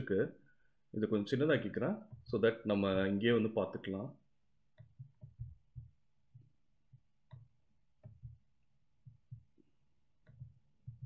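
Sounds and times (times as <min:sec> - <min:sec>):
computer keys and mouse clicks: 0:04.7 - 0:09.5, 0:10.2 - 0:11.0.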